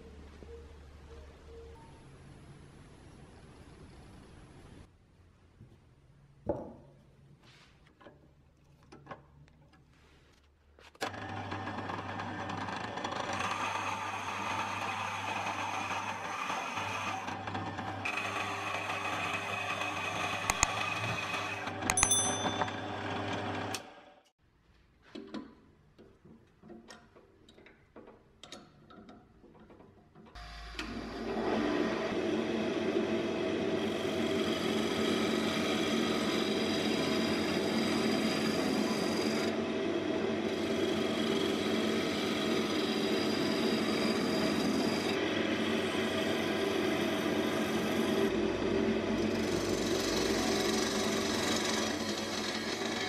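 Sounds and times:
wood lathe motor hum: 0:11.0 - 0:21.9, 0:30.4 - 0:53.0
gouge cutting spinning wood: 0:11.1 - 0:21.8, 0:31.5 - 0:53.0.

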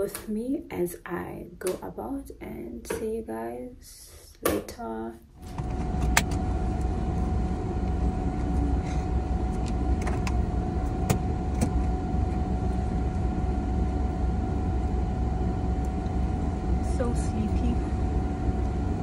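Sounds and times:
car engine and road rumble: 0:05.4 - 0:17.7.

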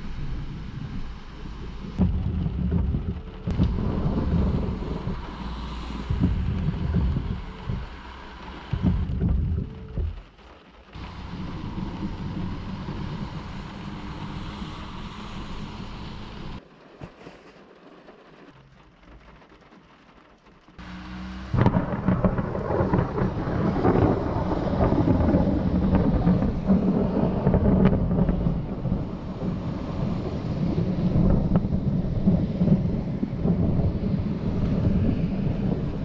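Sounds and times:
thunder rumbling: 0:00.0 - 0:10.4, 0:21.3 - 0:36.0
steady rain: 0:00.0 - 0:36.0.

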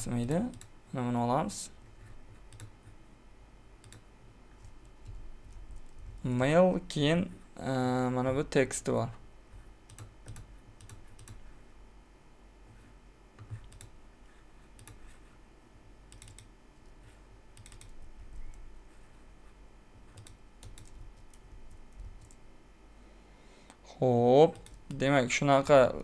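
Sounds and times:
keyboard typing: 0:00.3 - 0:00.7, 0:02.3 - 0:02.8, 0:03.8 - 0:04.0, 0:04.6 - 0:06.3, 0:09.8 - 0:11.5, 0:13.4 - 0:14.0, 0:14.8 - 0:15.2, 0:16.1 - 0:16.5, 0:17.5 - 0:18.7, 0:20.1 - 0:22.4, 0:24.5 - 0:25.0.

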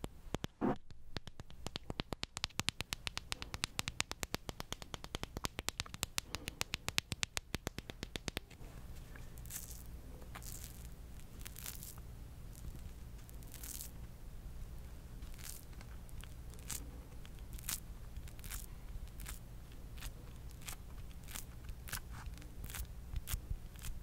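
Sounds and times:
fingernail tapping: 0:00.0 - 0:08.6
fingernail scratching: 0:09.4 - 0:13.9, 0:15.2 - 0:19.4, 0:20.0 - 0:24.0.

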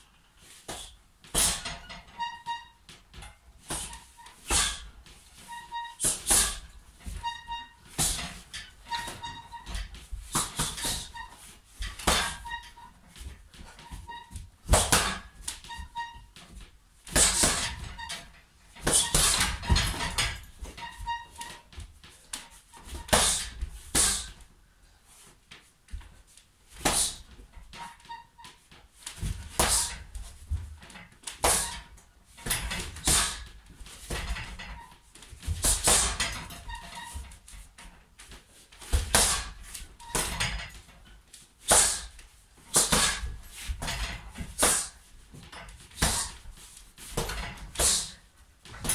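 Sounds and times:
punches hitting heavy bag: 0:14.7 - 0:15.2, 0:17.1 - 0:18.0, 0:23.0 - 0:24.4, 0:35.6 - 0:36.4, 0:39.0 - 0:39.6, 0:42.7 - 0:44.9, 0:46.0 - 0:46.4, 0:47.1 - 0:48.2.

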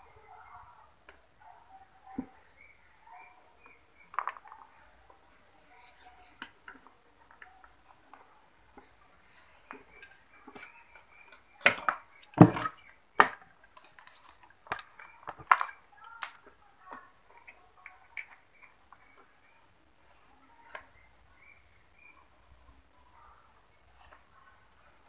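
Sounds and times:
objects knocking on wooden workbench: 0:12.4 - 0:12.7.

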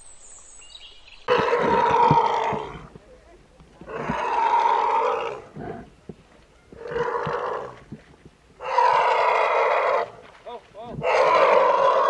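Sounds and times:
elephant calf roaring calls: 0:01.3 - 0:03.0, 0:03.8 - 0:05.9, 0:06.7 - 0:08.0, 0:08.6 - 0:10.3, 0:10.9 - 0:12.0.

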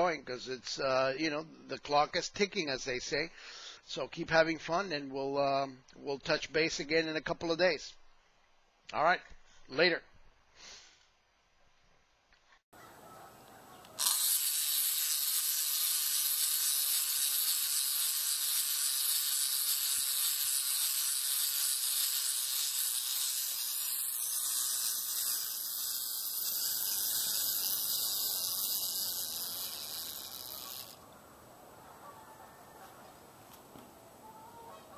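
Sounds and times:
wind-up toy whirring: 0:13.8 - 0:31.0.

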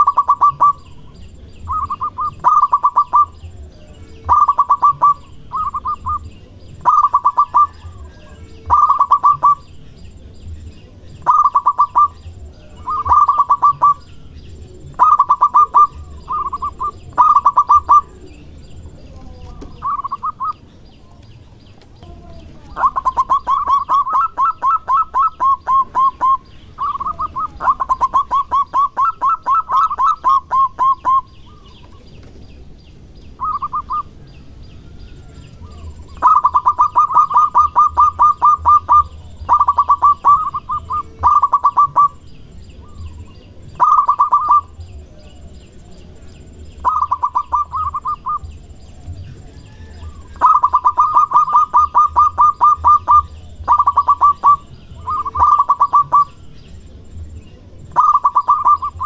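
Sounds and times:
dove rolling runs of notes: 0:00.0 - 0:59.0
dove staccato cooing: 0:00.0 - 0:59.0.

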